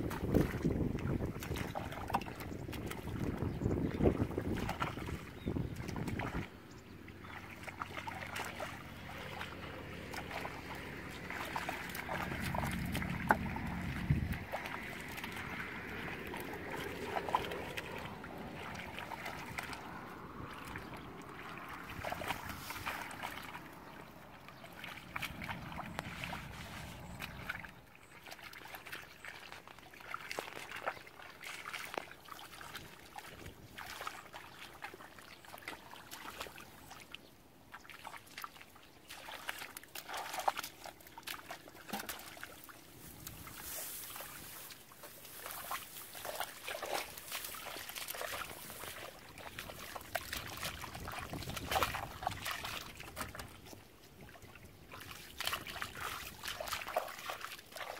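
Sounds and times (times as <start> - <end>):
splashing through muddy water: 0.0 - 57.9.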